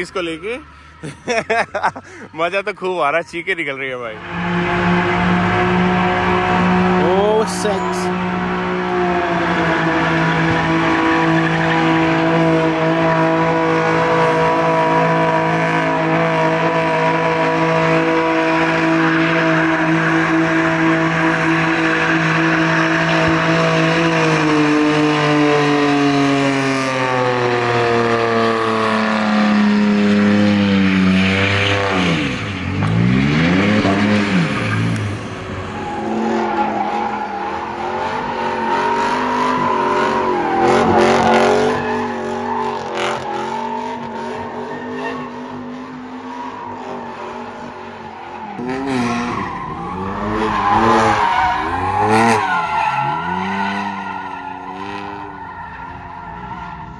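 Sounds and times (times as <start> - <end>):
car engine revving high: 3.6 - 55.5
another car engine revving: 4.0 - 55.4
tyres squealing: 48.1 - 56.7.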